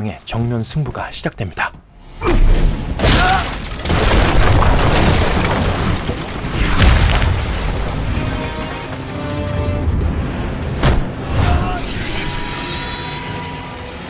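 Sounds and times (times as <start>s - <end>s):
debris scattering: 2.4s - 8.4s.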